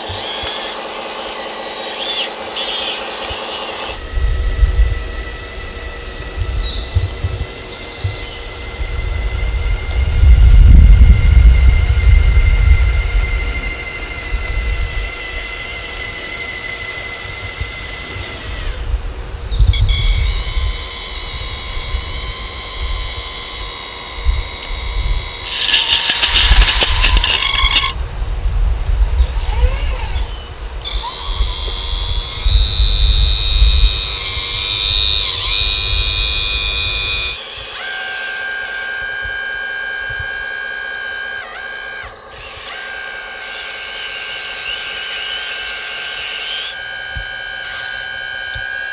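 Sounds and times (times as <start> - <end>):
hydraulic pump whine: 0.0 - 28.2, 28.8 - 48.9
excavator hydraulics whine: 19.7 - 28.0, 30.8 - 48.9.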